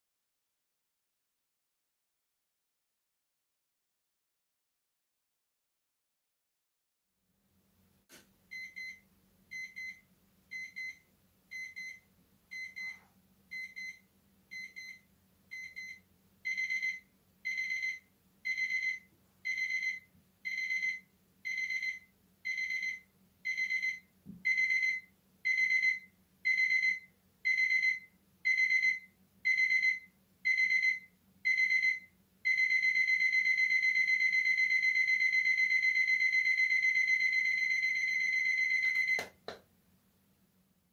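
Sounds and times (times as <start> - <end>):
alarm clock beeping: 8.5 - 39.4.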